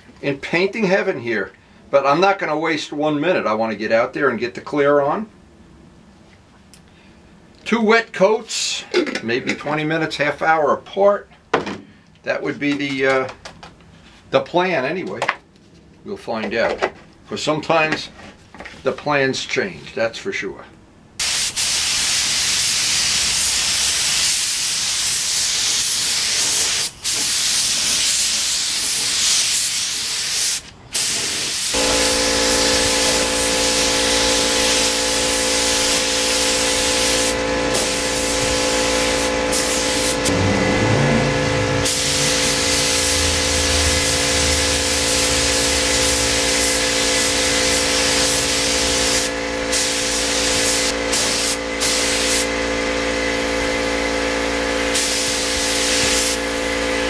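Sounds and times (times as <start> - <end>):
spray gun hissing: 21.2 - 41.1, 41.8 - 52.5, 54.9 - 56.6
steady machine hum: 31.8 - 57.0.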